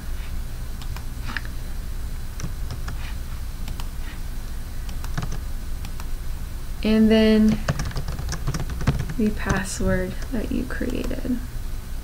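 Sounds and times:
low steady hum: 0:00.0 - 0:12.0
keyboard and mouse clicking: 0:02.4 - 0:03.0, 0:03.7 - 0:03.9, 0:04.9 - 0:06.1, 0:07.5 - 0:11.2.

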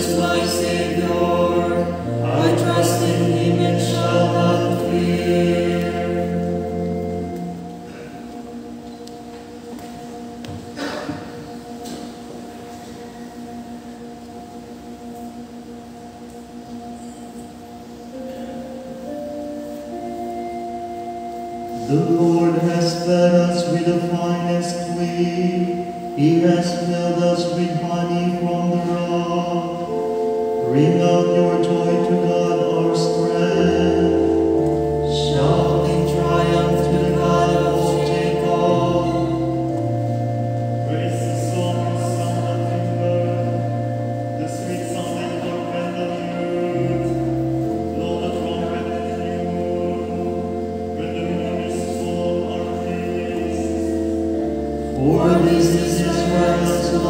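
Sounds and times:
choir singing a slow chant: 0:00.0 - 0:08.6, 0:21.7 - 0:57.0.

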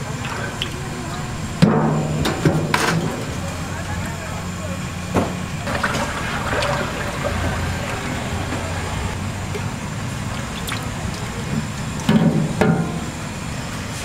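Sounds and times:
oil pouring and splashing: 0:00.0 - 0:03.4, 0:05.6 - 0:12.6
street traffic: 0:00.0 - 0:14.0.

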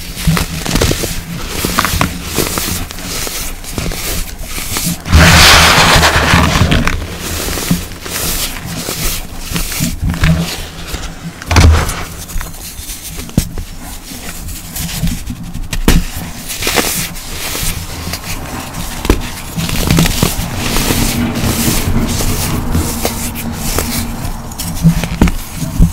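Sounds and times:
baking soda crunching and crumbling: 0:00.0 - 0:25.9
loud burst: 0:05.1 - 0:06.8.

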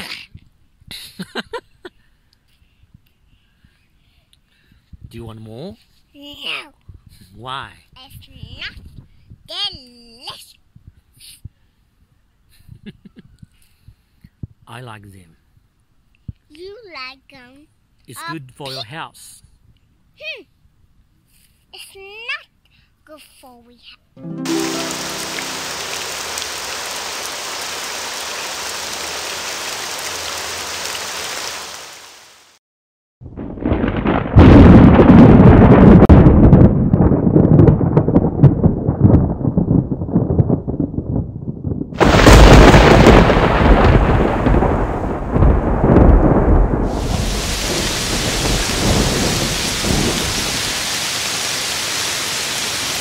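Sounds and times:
rain hissing: 0:24.2 - 0:32.6, 0:42.0 - 0:53.0
thunderclap rumbling: 0:24.5 - 0:29.8, 0:33.2 - 0:51.0.

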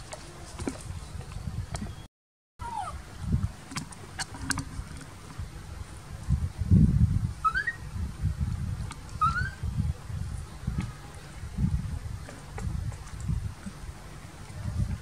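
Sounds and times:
monkey chirping: 0:07.4 - 0:07.8, 0:09.2 - 0:09.6.

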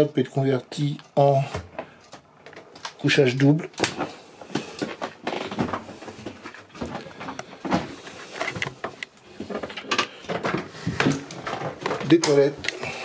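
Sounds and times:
rustling handling noise: 0:00.6 - 0:13.0.

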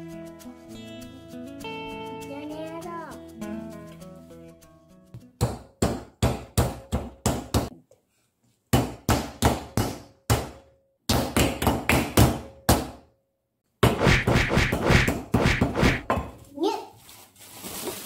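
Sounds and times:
rolling pin pounding dough: 0:05.4 - 0:07.7, 0:08.7 - 0:13.0, 0:13.8 - 0:16.3.

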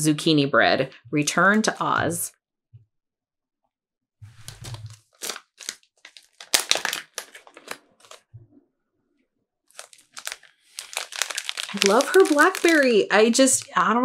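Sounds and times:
plastic bag crinkling: 0:04.4 - 0:08.2, 0:09.7 - 0:13.8.

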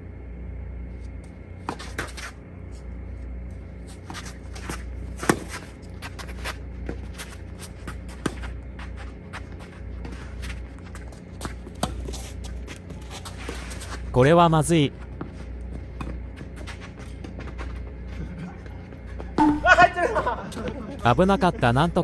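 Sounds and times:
steady low hum: 0:00.0 - 0:22.0
shoes scuffing on court: 0:01.1 - 0:03.0, 0:03.6 - 0:14.1, 0:15.0 - 0:18.3.

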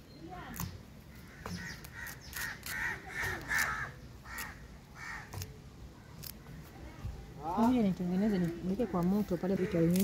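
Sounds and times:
bird calling: 0:00.0 - 0:05.5.

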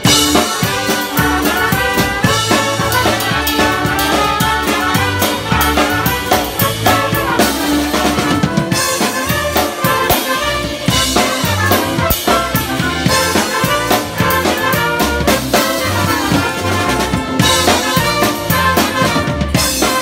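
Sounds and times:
live band playing upbeat song: 0:00.0 - 0:20.0
loud drum kit: 0:00.0 - 0:20.0.

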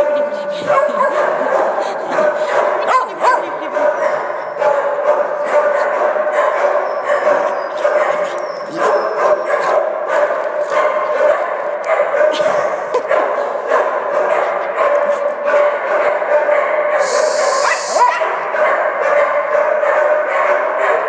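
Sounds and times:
dogs yipping and whining: 0:00.0 - 0:10.0, 0:17.0 - 0:18.4
dog yelps: 0:00.0 - 0:14.5, 0:15.5 - 0:21.0.

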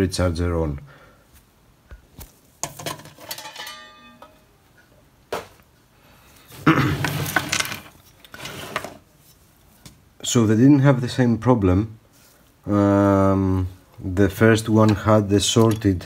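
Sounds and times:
metal clinks: 0:03.2 - 0:04.5
scraping and rubbing on metal: 0:06.8 - 0:09.6.

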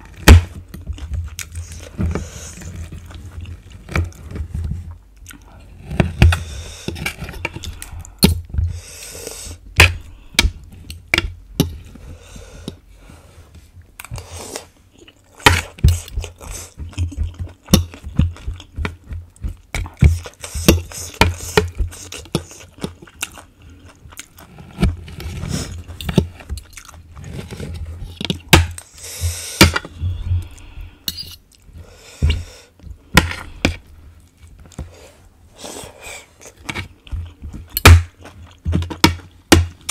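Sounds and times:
person chewing food: 0:00.0 - 0:39.9
metal cutlery scraping a plate: 0:31.1 - 0:31.4.

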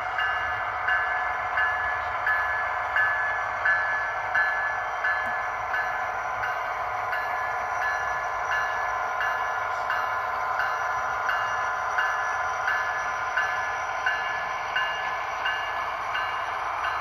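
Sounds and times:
locomotive bell ringing: 0:00.0 - 0:17.0
model train running: 0:00.0 - 0:17.0.

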